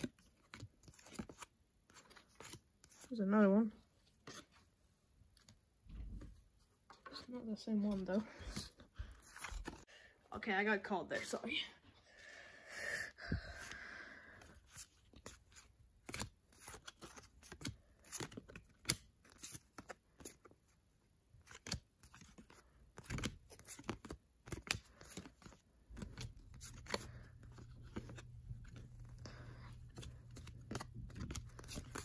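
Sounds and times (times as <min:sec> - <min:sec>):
cards flipped by hand: 0:00.1 - 0:03.1, 0:09.1 - 0:09.8, 0:14.6 - 0:20.5, 0:21.4 - 0:32.0.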